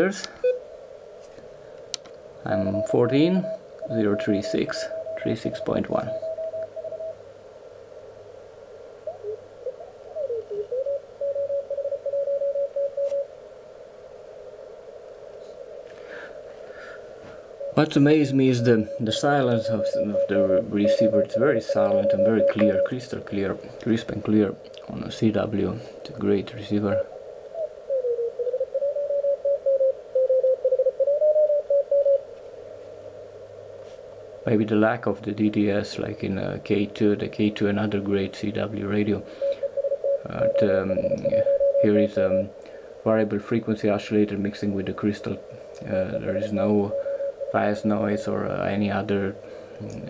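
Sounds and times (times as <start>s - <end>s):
radio receiver hiss: 0.0s - 28.0s, 32.0s - 50.0s
morse code tone: 2.5s - 7.2s, 10.2s - 13.3s, 17.6s - 23.2s, 39.4s - 42.6s, 46.0s - 48.7s.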